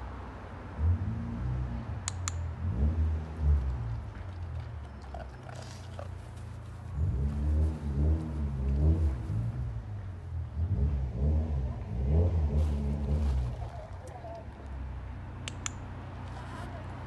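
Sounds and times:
sharp clicks: 2.0s - 2.5s, 15.4s - 15.9s.

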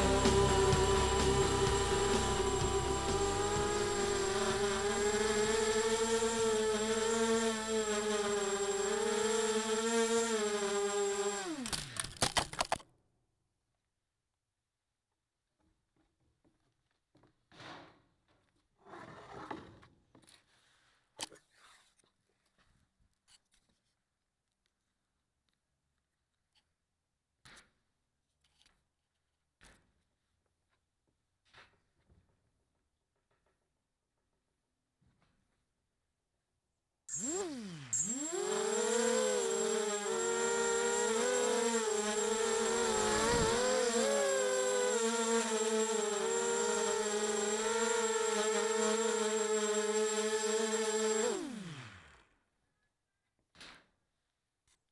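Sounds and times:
quadcopter motors whining: 0.0s - 12.7s, 37.1s - 52.3s.

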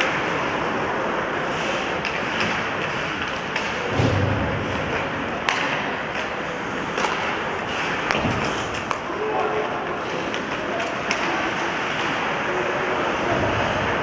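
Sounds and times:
arena noise: 0.0s - 14.0s
hockey sticks and puck clacking: 0.0s - 14.0s
heavy thud: 3.9s - 4.8s.

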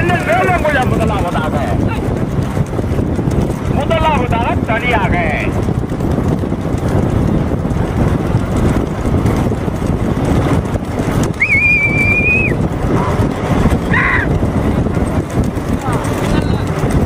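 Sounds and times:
vehicle running: 0.0s - 17.0s
wind buffeting microphone: 0.0s - 17.0s
high steady whistle: 11.4s - 12.6s.

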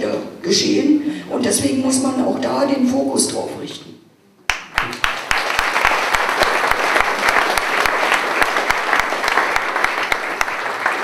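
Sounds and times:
audience applauding: 4.5s - 11.0s.

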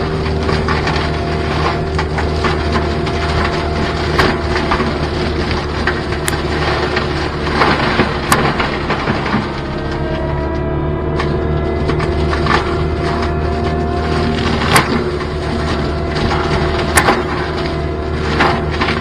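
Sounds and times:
engine and hydraulic drone: 0.0s - 19.0s
sharp wood cracks: 0.0s - 19.0s
wood snapping and splintering: 0.0s - 19.0s.

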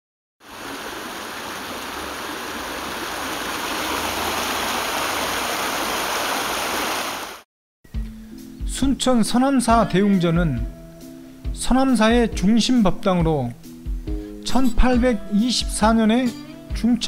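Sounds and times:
water rushing: 0.4s - 7.4s.

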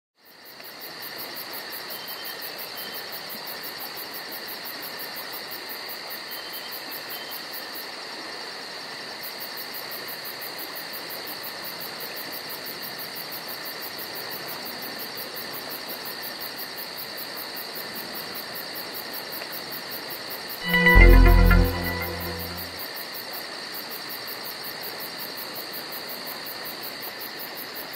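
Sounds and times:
short high chirps: 20.6s - 22.8s.

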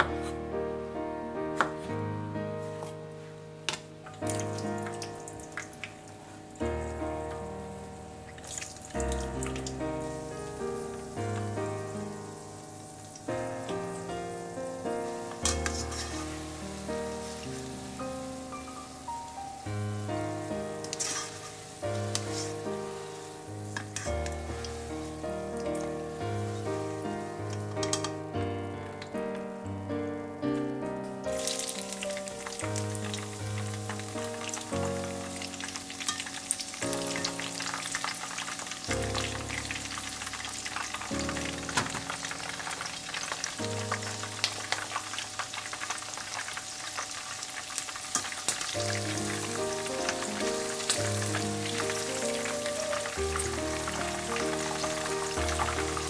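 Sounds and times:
background music: 0.0s - 45.8s, 48.7s - 56.0s
vegetables sizzling in hot oil: 4.0s - 28.2s, 31.3s - 56.0s
spattering oil crackles: 15.3s - 18.0s, 31.3s - 56.0s.

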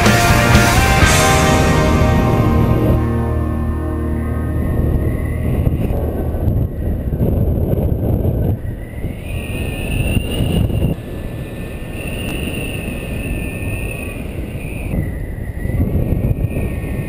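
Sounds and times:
faint whistle: 9.0s - 11.0s, 11.6s - 15.8s.

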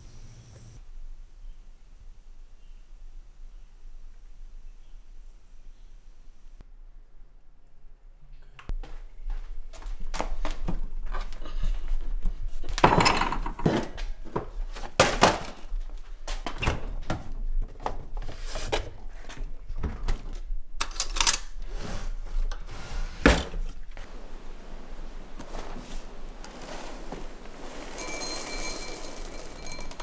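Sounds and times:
wooden drawers opening and shutting: 19.7s - 28.0s
refrigerator door opening and shutting: 22.0s - 23.7s
utensils rattling: 27.6s - 30.0s.

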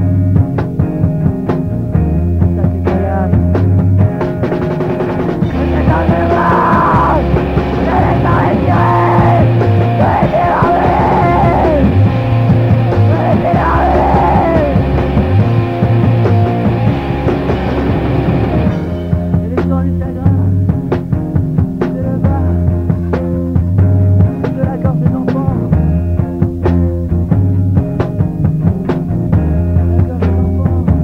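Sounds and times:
bass line: 0.0s - 31.0s
rock music: 0.0s - 31.0s
pitch-bending melody line: 4.5s - 19.6s.

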